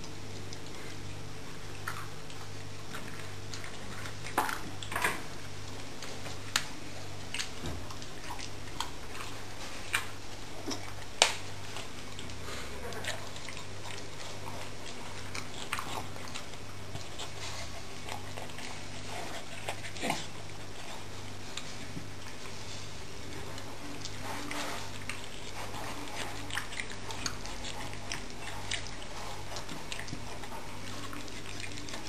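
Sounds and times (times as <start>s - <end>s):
dog chewing food: 0.0s - 32.0s.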